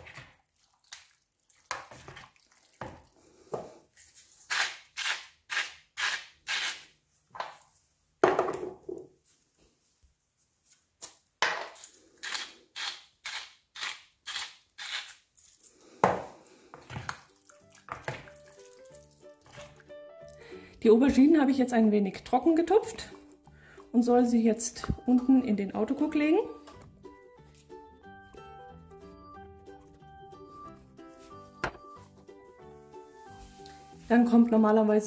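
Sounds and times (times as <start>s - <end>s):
spice mill grinding: 12.2s - 15.3s.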